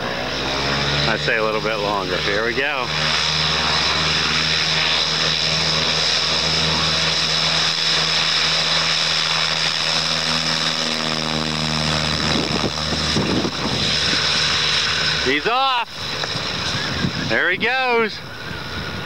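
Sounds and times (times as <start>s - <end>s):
propeller engine drone: 0.0s - 19.0s.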